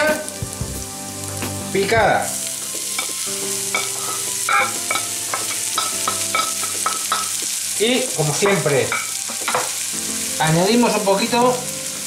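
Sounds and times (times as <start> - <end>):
onion sizzling in hot oil: 0.0 - 12.0
spatula tapping plate and pan: 2.7 - 9.8.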